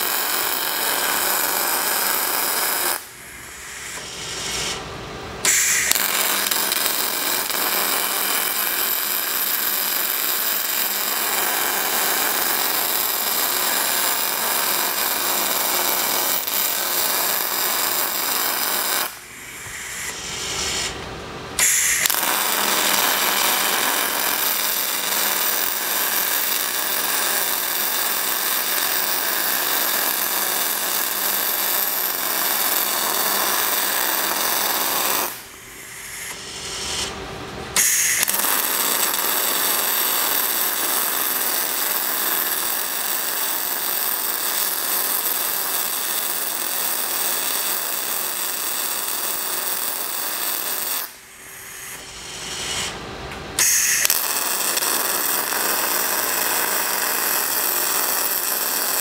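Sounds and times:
welding arc crackling: 0:00.0 - 0:03.2, 0:03.8 - 0:59.0.

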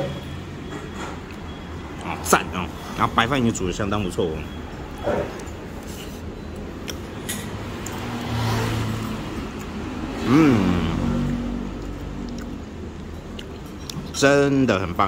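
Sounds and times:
passing vehicle engine: 0:07.0 - 0:13.0.

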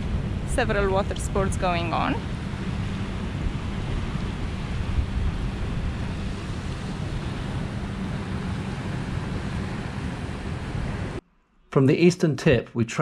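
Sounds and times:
waves washing: 0:00.0 - 0:11.2
wind buffeting microphone: 0:00.0 - 0:11.2.

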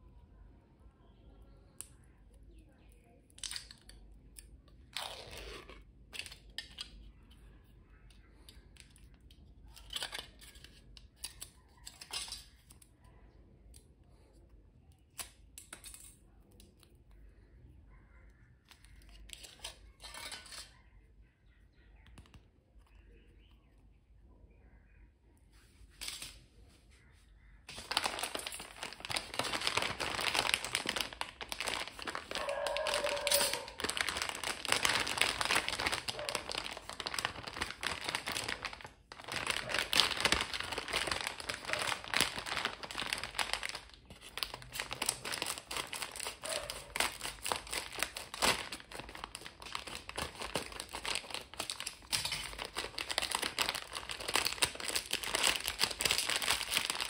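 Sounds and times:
plastic bag crinkling: 0:27.6 - 0:57.0.

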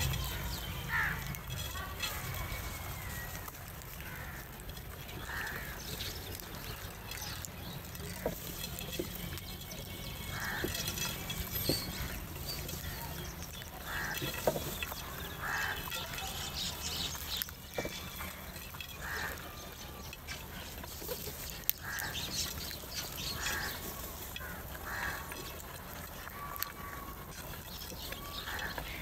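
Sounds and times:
crows cawing: 0:00.0 - 0:02.2, 0:03.0 - 0:07.3, 0:10.1 - 0:12.2, 0:13.8 - 0:16.6, 0:17.3 - 0:20.7, 0:21.5 - 0:29.0
beaks pecking in clay bowls: 0:00.0 - 0:29.0.

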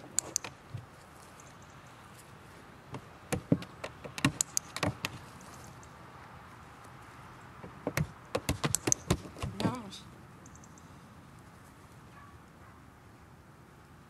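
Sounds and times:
training clicker clicks: 0:00.1 - 0:00.6, 0:03.7 - 0:05.2, 0:08.4 - 0:09.2.

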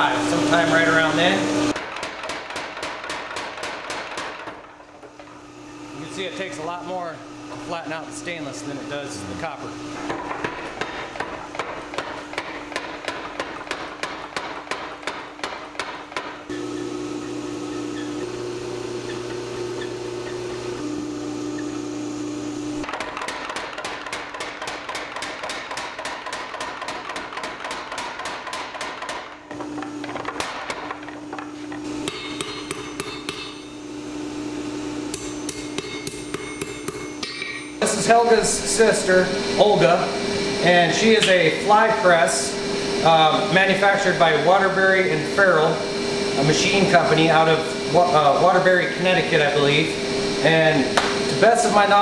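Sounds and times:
steady machine hum: 0:00.0 - 0:52.0
power hammer striking hot metal: 0:10.0 - 0:20.6, 0:22.8 - 0:31.1, 0:31.8 - 0:33.8, 0:35.1 - 0:38.6, 0:50.9 - 0:51.4
hand hammer ringing on anvil: 0:32.1 - 0:33.7, 0:35.1 - 0:37.8.

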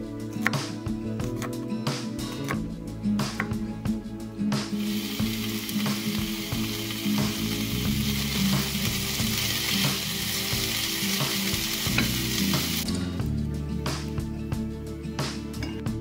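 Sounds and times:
vegetables sizzling in a frying pan: 0:04.8 - 0:12.8
spatula tapping and scraping pan: 0:11.9 - 0:12.2.

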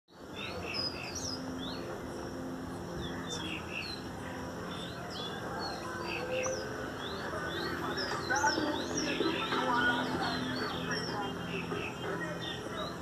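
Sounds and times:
songbird chirping and whistling: 0:05.1 - 0:13.0.

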